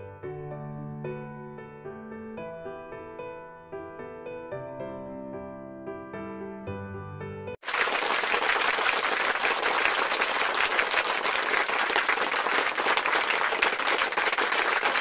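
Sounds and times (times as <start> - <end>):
crowd applause: 7.6 - 15.0.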